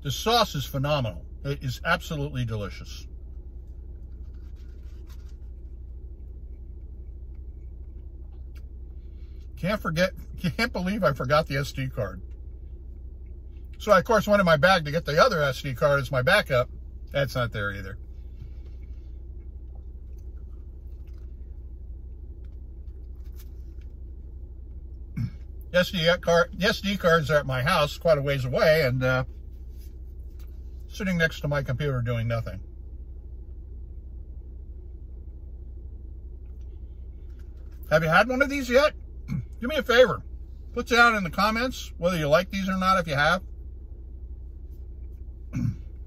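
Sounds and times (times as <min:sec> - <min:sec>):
car cabin hum: 0:00.0 - 0:46.0
man chewing: 0:03.3 - 0:09.5, 0:18.0 - 0:25.7.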